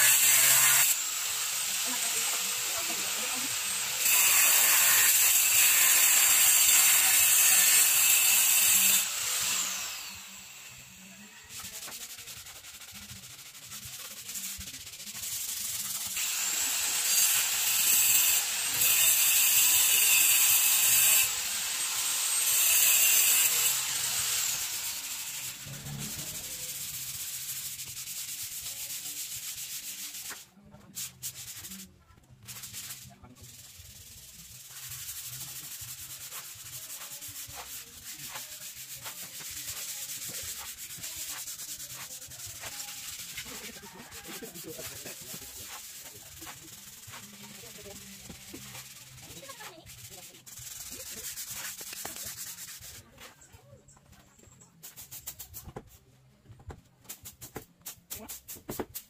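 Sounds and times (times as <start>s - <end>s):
sanding block rubbing wall: 0.0s - 53.4s, 54.7s - 56.1s, 57.0s - 59.0s.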